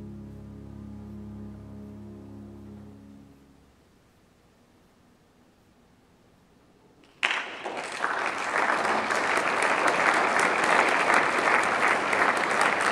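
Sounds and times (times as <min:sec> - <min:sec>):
audience applause: 0:07.1 - 0:12.9.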